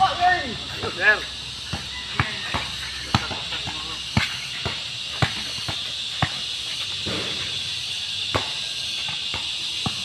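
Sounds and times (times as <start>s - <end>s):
insects hissing: 0.0s - 10.0s
basketball bouncing on hard court: 1.7s - 6.5s, 8.3s - 10.0s.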